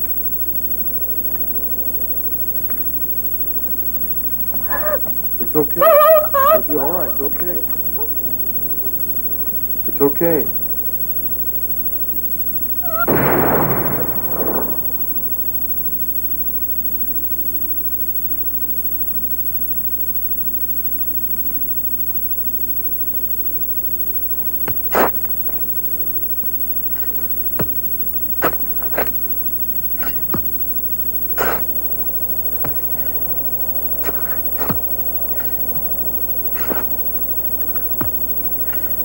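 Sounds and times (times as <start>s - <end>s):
tape hiss and hum: 0.0s - 39.0s.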